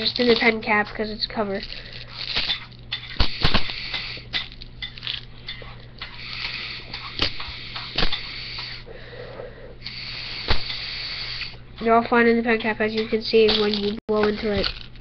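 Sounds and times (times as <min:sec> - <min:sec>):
breathy hiss of blowing: 0:06.2 - 0:11.6
pellets rattling in plastic bottle: 0:13.5 - 0:15.0.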